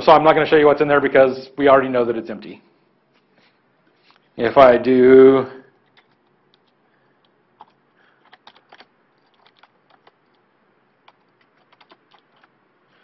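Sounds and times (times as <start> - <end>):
keyboard keystrokes: 7.6 - 10.4, 11.0 - 12.5.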